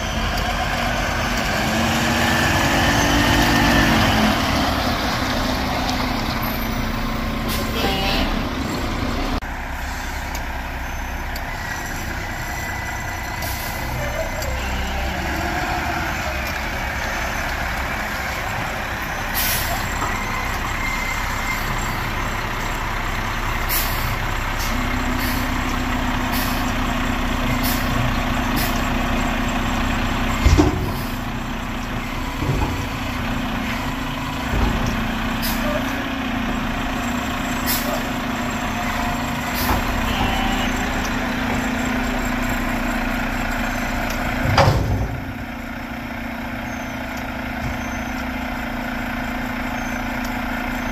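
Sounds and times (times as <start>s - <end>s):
garbage truck diesel engine: 0.0s - 50.9s.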